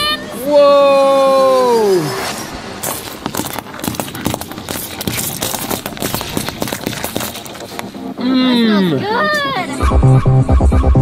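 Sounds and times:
car tyre crushing lemons: 0:02.2 - 0:07.9.

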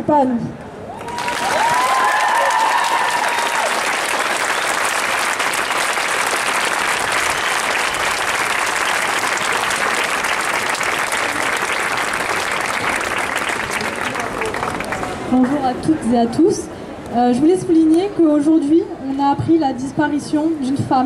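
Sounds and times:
crowd applauding: 0:00.9 - 0:15.6
person cheering: 0:01.0 - 0:03.7.

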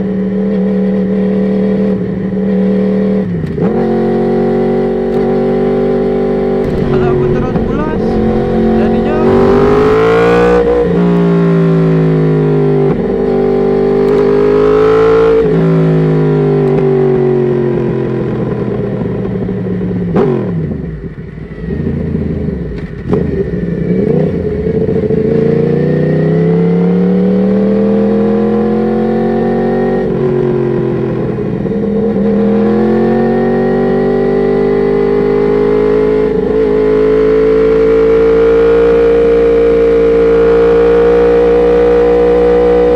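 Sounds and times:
motorcycle engine revving: 0:03.5 - 0:17.4.

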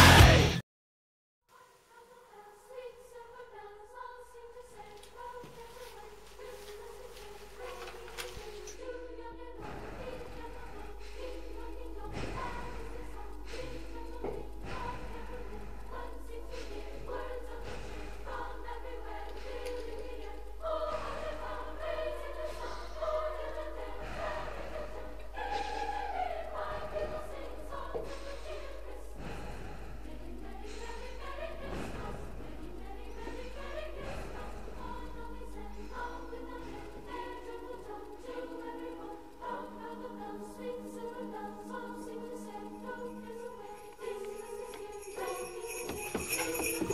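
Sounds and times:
choir singing held notes: 0:00.0 - 0:00.6, 0:01.6 - 0:46.9.

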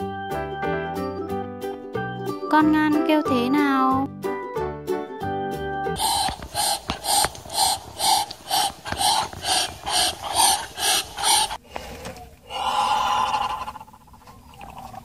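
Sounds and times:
duck hissing: 0:06.0 - 0:14.0.

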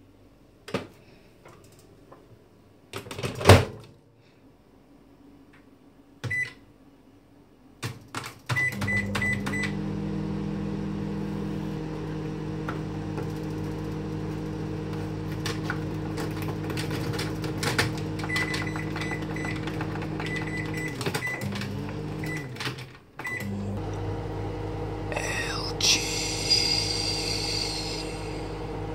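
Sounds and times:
keypad beeps: 0:06.2 - 0:06.6, 0:08.5 - 0:09.8, 0:18.2 - 0:21.5, 0:22.2 - 0:22.6, 0:23.2 - 0:23.5
microwave oven humming: 0:08.6 - 0:28.9.

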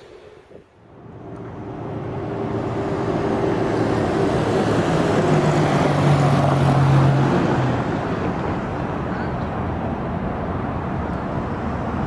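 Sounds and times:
freight train rumbling past: 0:00.0 - 0:12.0
road vehicle passing: 0:00.0 - 0:12.0.

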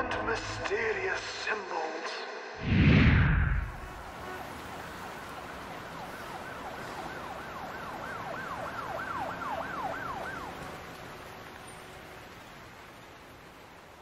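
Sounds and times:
rain hiss: 0:02.7 - 0:14.0
distant siren wailing: 0:03.2 - 0:13.6.

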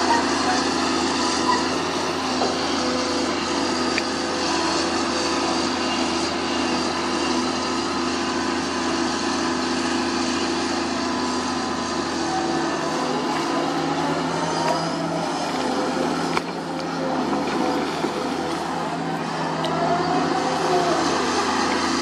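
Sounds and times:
excavator diesel engine running: 0:00.0 - 0:22.0
excavator bucket digging soil: 0:12.6 - 0:22.0.

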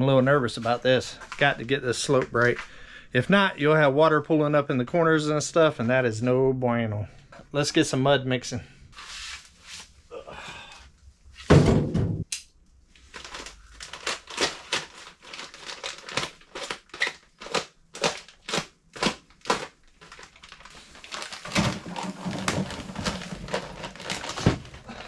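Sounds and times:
plastic bag crinkling: 0:13.0 - 0:25.0
bag rustling: 0:20.1 - 0:25.0.

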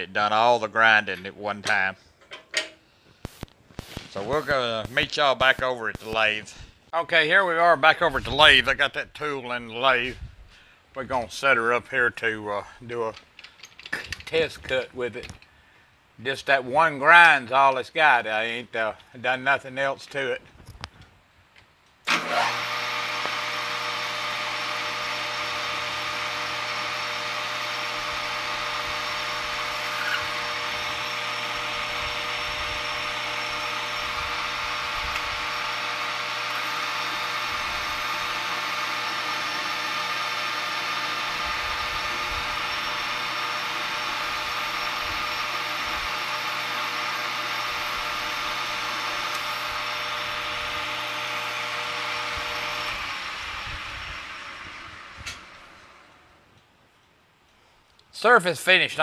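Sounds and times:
metal lathe cutting: 0:22.1 - 0:55.6
gear whine: 0:22.1 - 0:56.3.

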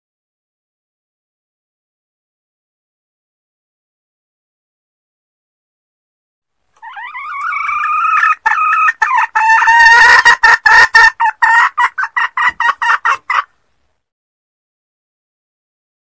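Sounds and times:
junglefowl hen calling: 0:06.8 - 0:13.6.

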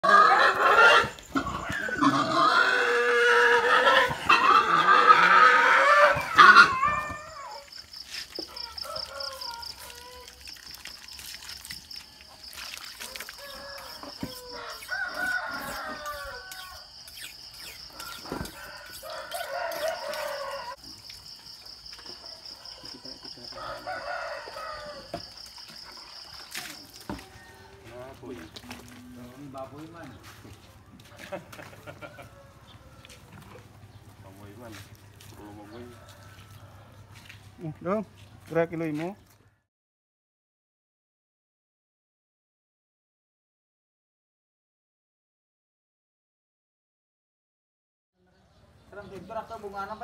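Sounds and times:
pig squealing: 0:00.0 - 0:07.7
roosters crowing: 0:00.0 - 0:07.7, 0:08.4 - 0:10.4, 0:13.0 - 0:20.9, 0:22.4 - 0:25.5, 0:26.2 - 0:30.2, 0:31.0 - 0:37.2.

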